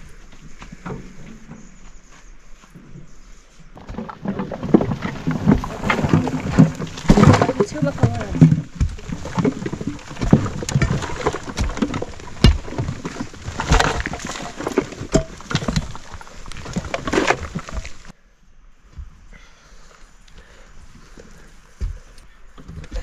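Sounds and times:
hand tools digging earth and stones: 3.8s - 18.2s.

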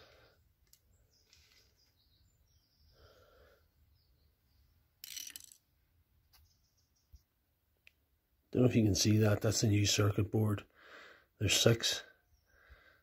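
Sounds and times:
faint handling sounds: 0.6s - 2.0s.

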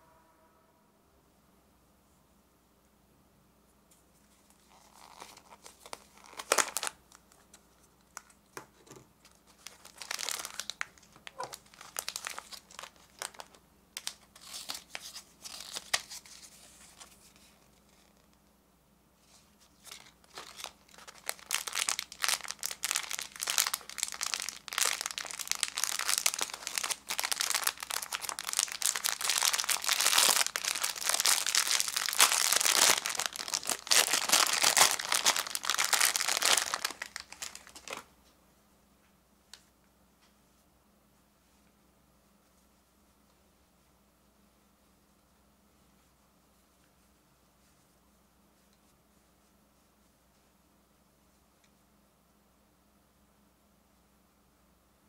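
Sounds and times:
plastic wrapper crinkling: 4.4s - 18.4s, 19.7s - 38.1s.

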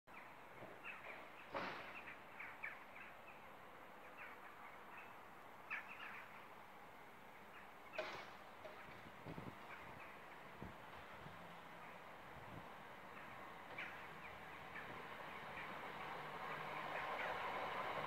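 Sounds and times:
small birds chirping: 0.1s - 6.6s, 13.0s - 17.8s.

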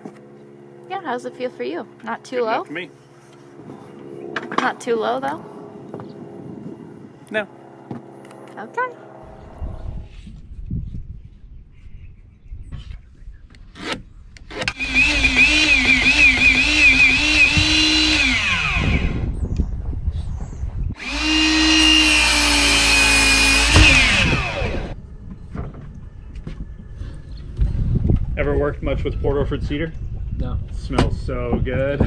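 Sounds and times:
miter saw cutting wood: 14.5s - 19.3s, 21.0s - 25.0s.

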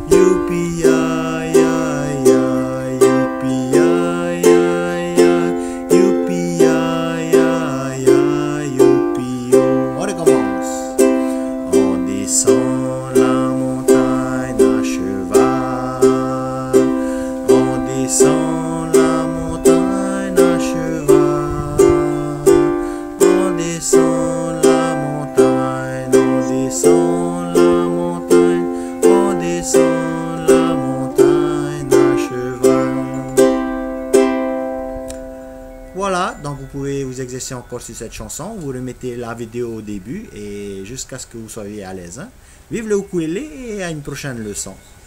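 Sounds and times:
man singing: 0.0s - 33.8s
ukulele strumming: 0.0s - 36.0s.

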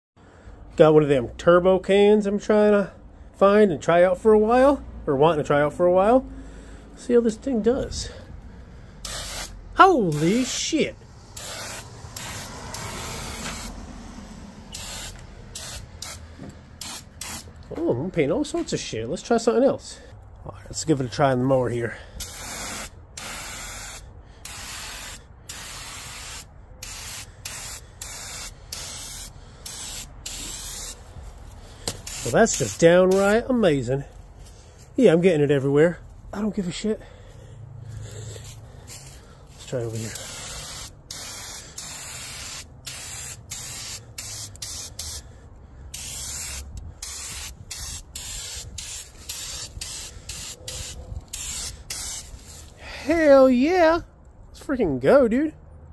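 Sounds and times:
spray paint can hissing: 9.0s - 13.8s, 14.7s - 17.6s, 22.2s - 33.4s, 38.4s - 45.2s, 45.9s - 52.7s.

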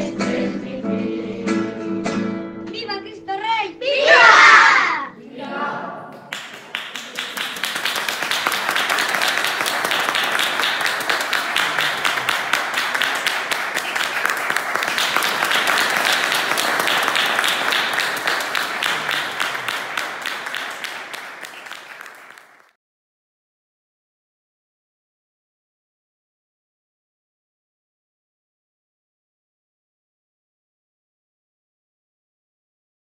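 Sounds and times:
crowd applause: 5.4s - 22.8s.

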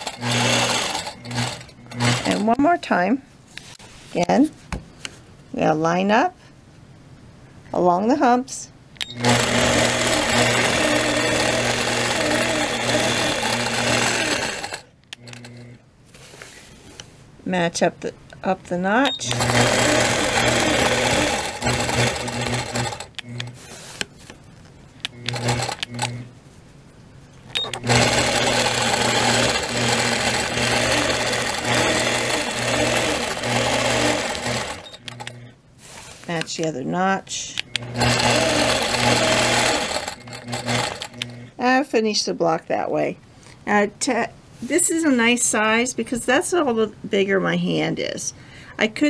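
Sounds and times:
quilting machine stitching: 0.0s - 2.6s, 9.1s - 15.8s, 19.0s - 24.1s, 25.1s - 26.2s, 27.6s - 36.5s, 37.7s - 41.4s.

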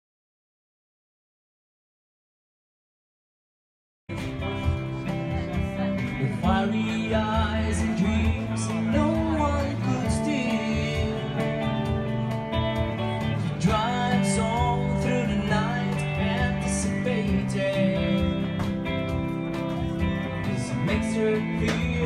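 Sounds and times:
bass line: 4.1s - 22.0s
electric guitar: 4.1s - 22.0s
light steady beat: 4.1s - 22.0s
person singing: 5.1s - 22.0s.

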